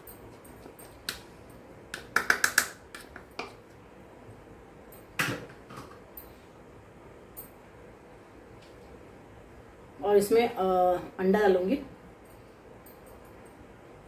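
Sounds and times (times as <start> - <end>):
plastic spoon tapping a bowl: 1.9 - 3.6.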